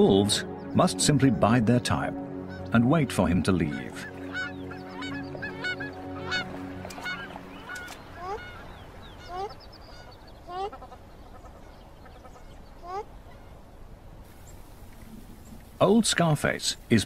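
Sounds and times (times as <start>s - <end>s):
waterfowl honking: 3.5s - 13.6s.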